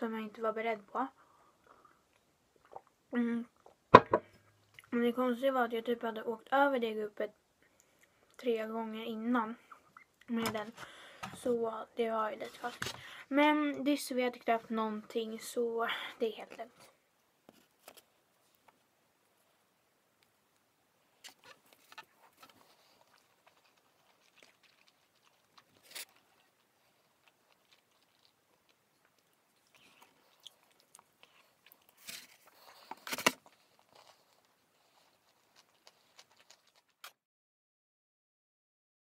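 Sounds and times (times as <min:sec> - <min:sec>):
person chewing: 0:01.8 - 0:03.0, 0:21.2 - 0:37.1.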